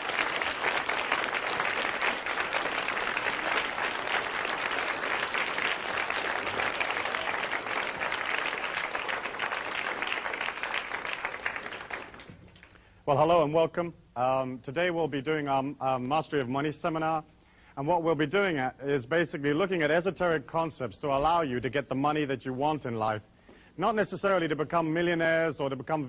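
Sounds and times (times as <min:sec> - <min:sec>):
audience applauding: 0:00.0 - 0:12.7.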